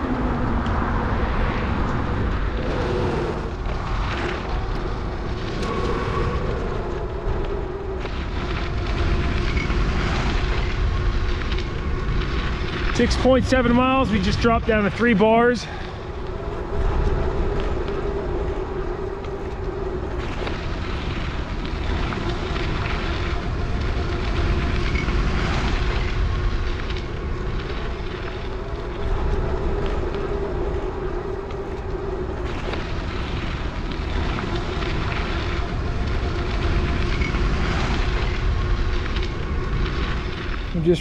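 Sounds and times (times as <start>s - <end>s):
wind rushing over microphone: 0.0s - 41.0s.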